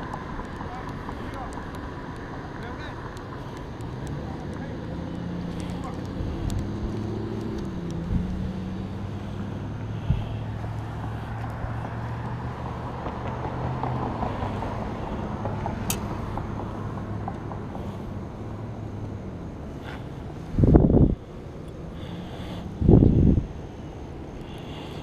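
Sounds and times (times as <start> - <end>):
cars passing: 0.0 - 25.0
traffic humming: 0.0 - 25.0.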